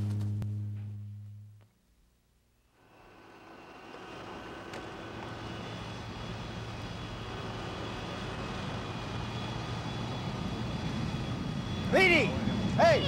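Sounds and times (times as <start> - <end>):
jet engines rumbling and whining: 2.6 - 13.0.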